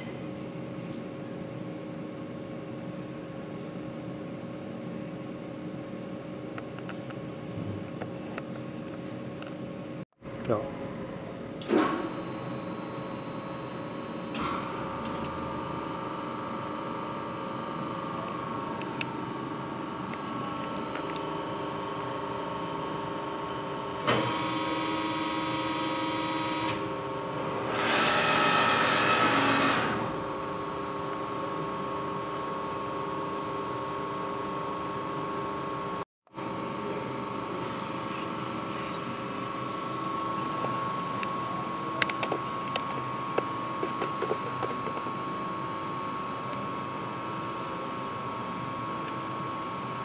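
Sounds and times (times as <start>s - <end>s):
machine hum with whining tones: 0.0s - 50.0s
higher whine: 35.8s - 48.0s.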